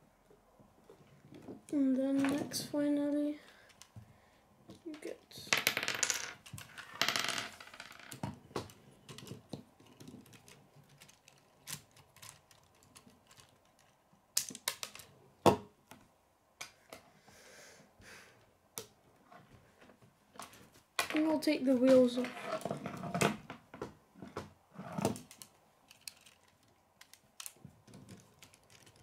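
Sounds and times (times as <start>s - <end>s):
plastic construction pieces clicking: 8.0s - 15.1s, 25.1s - 29.0s.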